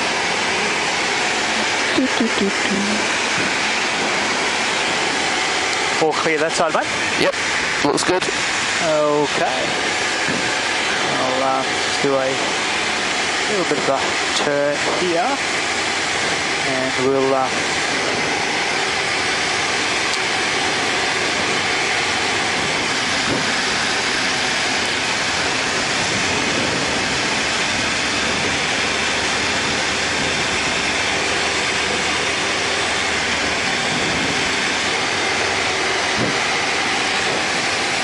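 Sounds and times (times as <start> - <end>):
light aircraft engine drone: 0.0 - 38.0.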